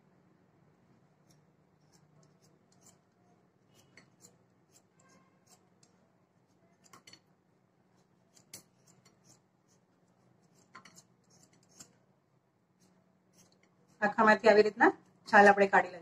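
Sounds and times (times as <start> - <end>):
knife scraping fruit skin: 1.0 - 7.3, 8.0 - 12.0, 12.8 - 14.0.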